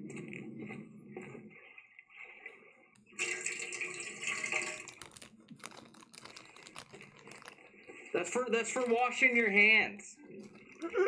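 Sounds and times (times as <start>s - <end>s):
water pouring into a cup: 2.4s - 11.0s.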